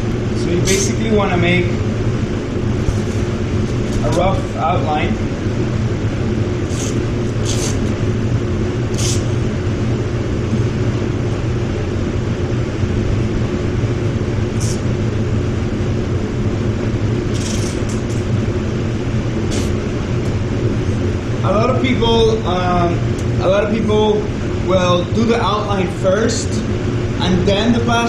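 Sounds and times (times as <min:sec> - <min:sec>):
ventilation hum: 0:00.0 - 0:28.0
masking tape crackling off roll: 0:17.3 - 0:18.2.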